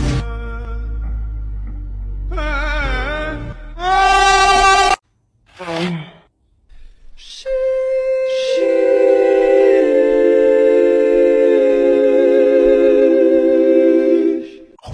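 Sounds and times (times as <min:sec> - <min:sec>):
wordless choir chord: 0:07.5 - 0:14.8.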